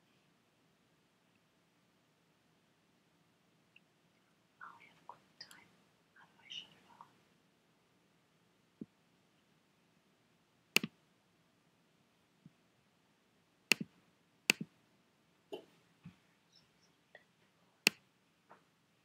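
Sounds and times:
computer mouse clicks: 10.8 - 11.0, 13.7 - 13.9, 14.5 - 14.7.

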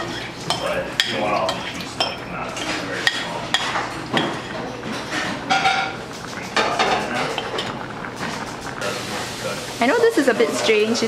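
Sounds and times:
utensil scraping a bowl: 0.0 - 6.0.

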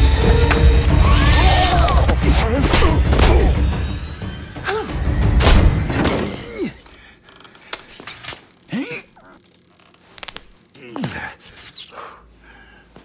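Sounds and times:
dramatic film score: 0.0 - 9.3.

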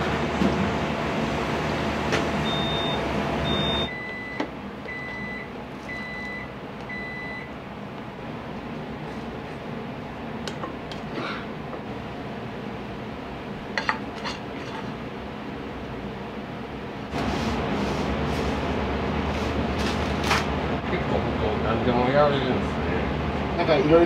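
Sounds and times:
steady kitchen hum: 0.0 - 24.0
electronic appliance beeps: 2.4 - 7.5.

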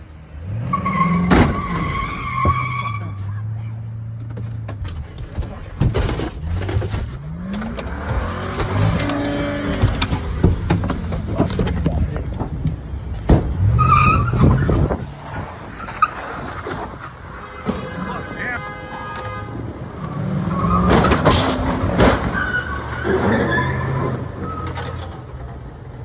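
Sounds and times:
tires squealing: 0.3 - 3.8, 5.4 - 12.8, 13.5 - 25.7
car engine revving: 6.2 - 12.8.

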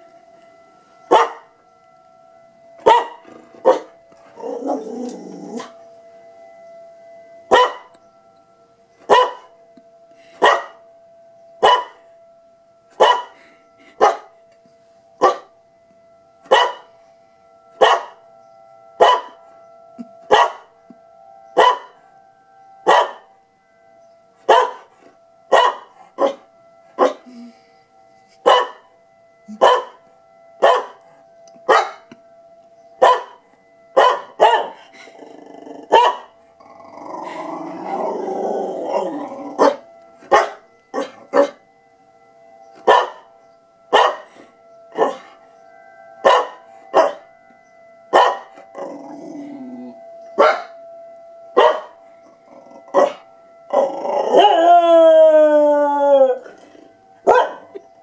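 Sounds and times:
faint emergency siren: 0.0 - 58.0
dog barking: 1.1 - 1.4, 2.8 - 3.9, 7.5 - 7.9, 9.1 - 9.5, 10.4 - 10.8, 11.6 - 12.0, 13.0 - 13.4, 14.0 - 14.3, 15.2 - 15.5, 16.5 - 16.9, 17.8 - 18.2, 19.0 - 19.4, 20.3 - 20.7, 21.6 - 21.9, 22.8 - 23.2, 24.5 - 24.9, 25.5 - 26.4, 27.0 - 27.2, 28.4 - 28.8, 29.6 - 30.0, 30.6 - 31.0, 31.7 - 32.0, 33.0 - 33.4, 34.0 - 34.8, 35.9 - 36.3, 39.6 - 41.6, 42.8 - 43.2, 43.9 - 44.3, 44.9 - 45.3, 46.2 - 47.2, 48.1 - 48.6, 50.4 - 50.7, 51.6 - 52.0, 52.9 - 53.2, 57.3 - 57.8
dog howling: 2.9 - 5.8, 34.0 - 41.6, 42.8 - 43.3, 44.9 - 45.4, 46.2 - 47.3, 48.1 - 50.8, 51.6 - 57.8.

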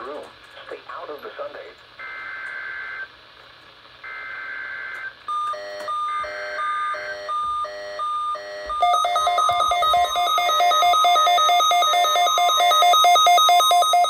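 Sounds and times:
radio alert beeps: 8.4 - 14.0.

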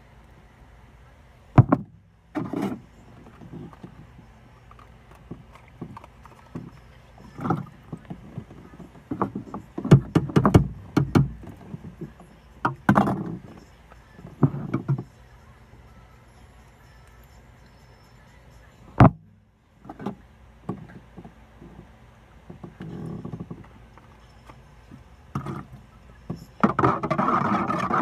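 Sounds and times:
rustling close to microphone: 2.4 - 15.3
knocks and clicks: 9.1 - 11.9.

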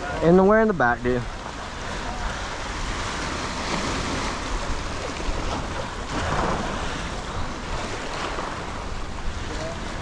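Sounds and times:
surf washing against rocks: 0.0 - 10.0
wind buffeting microphone: 0.0 - 10.0.

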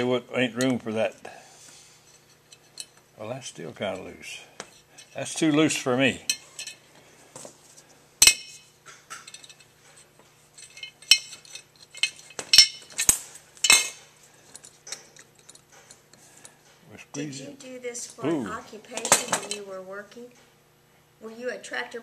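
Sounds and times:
metal clinks on a steel workbench: 10.6 - 16.0.

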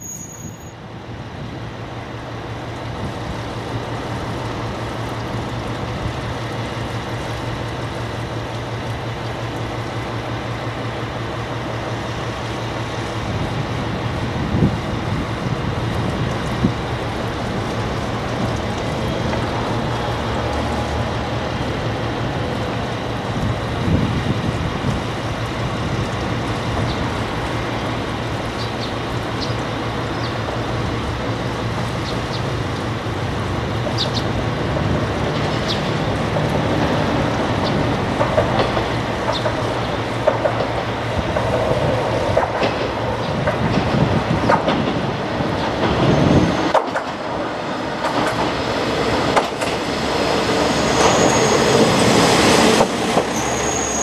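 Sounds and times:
high-pitched wheel squeal: 0.0 - 0.8, 50.4 - 52.1, 53.2 - 54.0
diesel railcar passing: 0.0 - 54.0
wheels on rails: 3.7 - 54.0.

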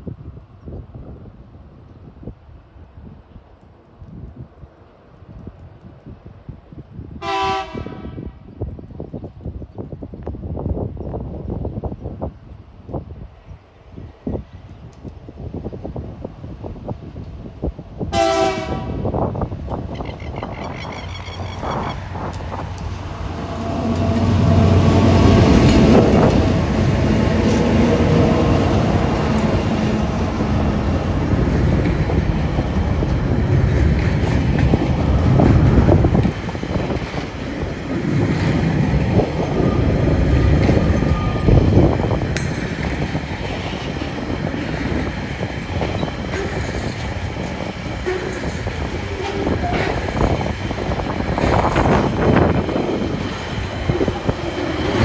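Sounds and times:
diesel locomotive engines: 0.0 - 55.0
train wagons rumbling: 7.6 - 55.0
wheels clacking over rail joints: 19.6 - 55.0.

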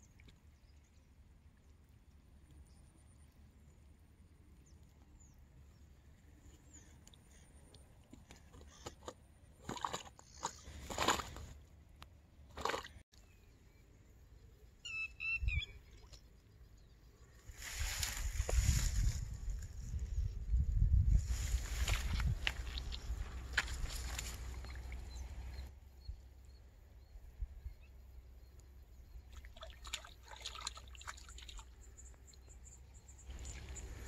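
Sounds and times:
faint outdoor background: 0.0 - 34.0
bird chirping: 13.2 - 17.4.

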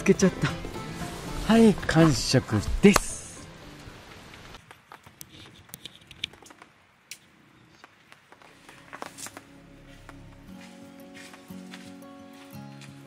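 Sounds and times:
music: 0.0 - 4.6, 8.4 - 13.0
tent fabric rustling: 0.4 - 2.6
tent poles clicking: 4.1 - 9.4.

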